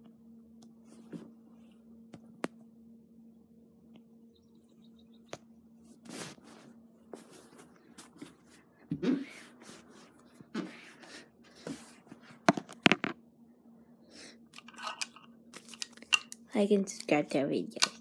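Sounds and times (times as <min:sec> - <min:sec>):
faint steady hum: 0:00.0 - 0:18.0
handling noise on microphone: 0:06.0 - 0:10.8.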